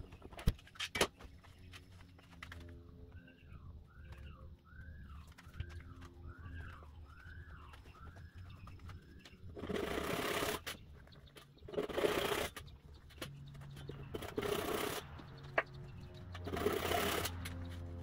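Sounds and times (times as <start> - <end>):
bird chirping: 0.0 - 18.0
wooden dowel scraping in holes: 14.1 - 15.1.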